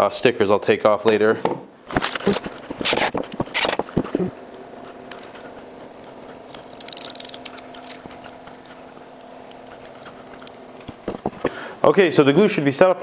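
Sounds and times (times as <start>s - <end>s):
steady low hum: 0.0s - 13.0s
boards clicking as handled: 1.9s - 4.2s, 9.5s - 11.6s
scratchy rustle: 2.1s - 3.8s.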